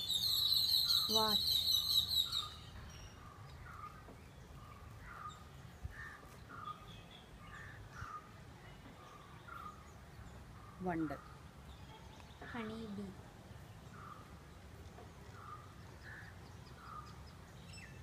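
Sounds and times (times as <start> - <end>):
birds giving short calls: 0.0 - 9.9.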